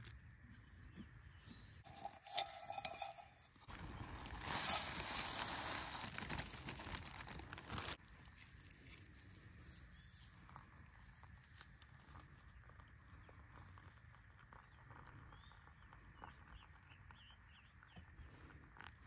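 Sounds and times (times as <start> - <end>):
oats pouring from plastic bag: 1.9 - 8.0.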